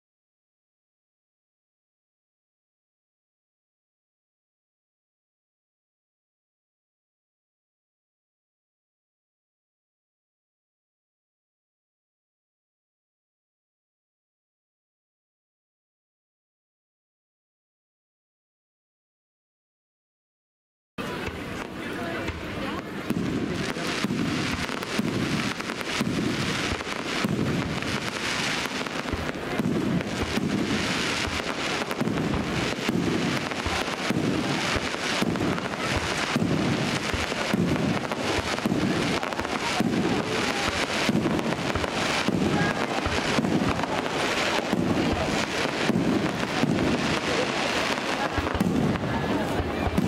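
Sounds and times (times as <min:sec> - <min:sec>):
fireworks bangs and crackles: 0:21.0 - 0:50.0
low fireworks booms: 0:21.0 - 0:50.0.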